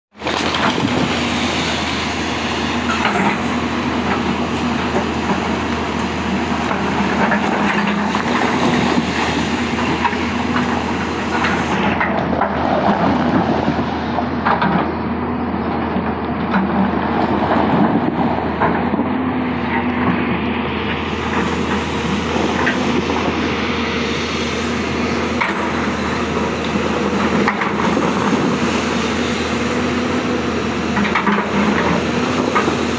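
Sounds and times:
excavator diesel engine running: 0.1s - 32.9s
water splashing: 6.7s - 14.1s.

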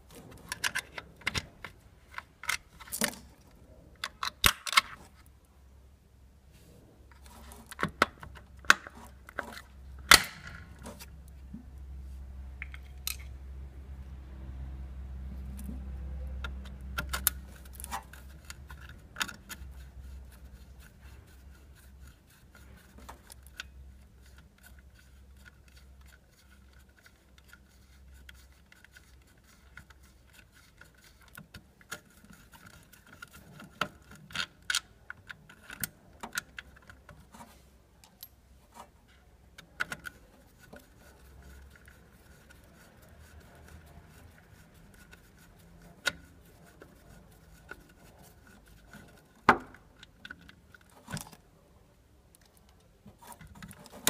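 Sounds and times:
small metallic clicks and scrapes: 0.0s - 5.3s, 7.1s - 11.6s, 12.6s - 13.4s, 15.3s - 51.6s, 52.2s - 54.0s.

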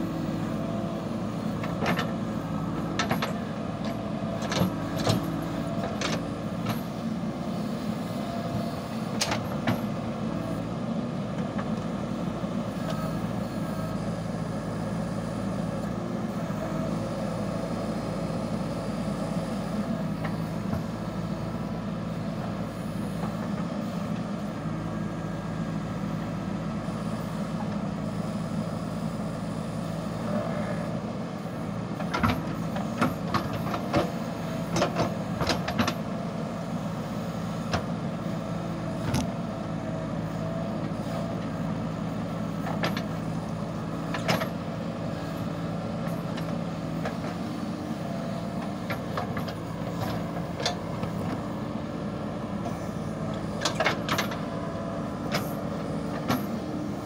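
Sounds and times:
diesel engine running under load: 0.0s - 57.0s.

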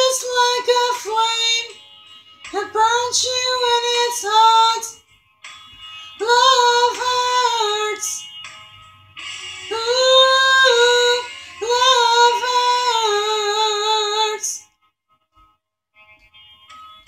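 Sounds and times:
woman singing with vibrato: 0.0s - 1.7s, 2.5s - 5.0s, 6.2s - 8.2s, 9.7s - 14.6s.

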